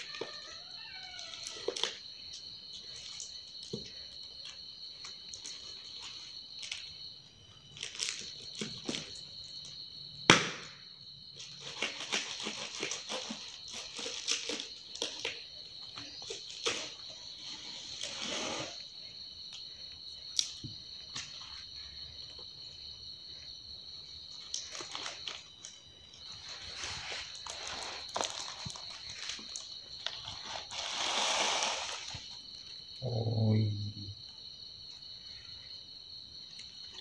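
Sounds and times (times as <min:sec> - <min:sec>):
sharp crack: 0:10.3 - 0:10.8
paper and cardboard rustling and tearing: 0:11.5 - 0:15.4, 0:26.4 - 0:32.4.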